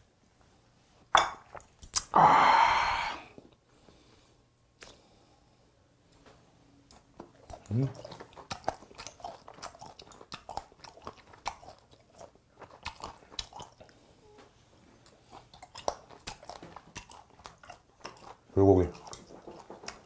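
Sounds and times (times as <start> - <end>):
wet mouth clicks: 1.8 - 2.2
man chewing food crunching: 6.8 - 20.0.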